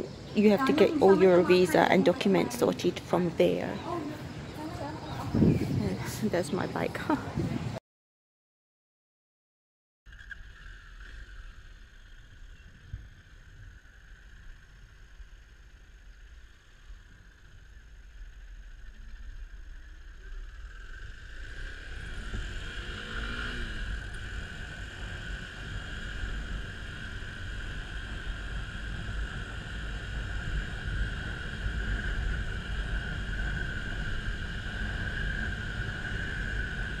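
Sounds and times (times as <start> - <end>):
wind rumble on microphone: 0.0 - 7.8, 10.8 - 37.0
motorcycle engine revving: 19.8 - 37.0.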